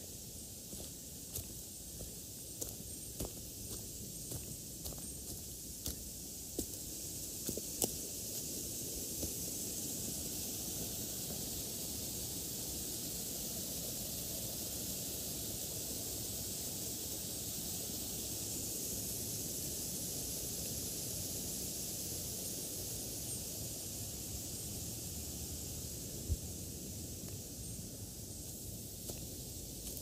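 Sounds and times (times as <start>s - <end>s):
steady outdoor hiss: 0.0s - 30.0s
footsteps: 0.7s - 8.0s.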